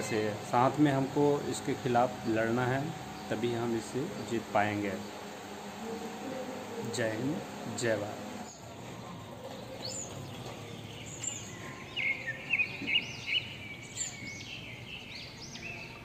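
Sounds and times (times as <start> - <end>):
small birds chirping: 0.0 - 5.7, 8.4 - 16.0
outdoor background hiss: 0.0 - 16.0.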